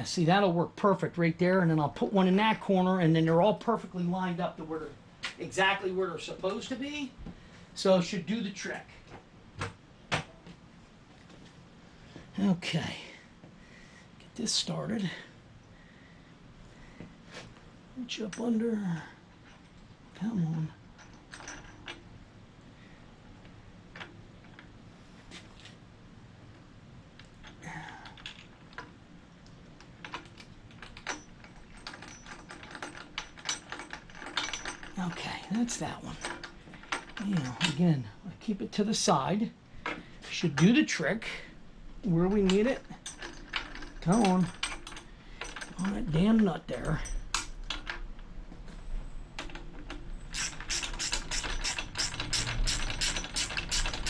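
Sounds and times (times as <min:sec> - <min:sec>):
small clicks of metal hardware: 0:49.4 - 0:54.0.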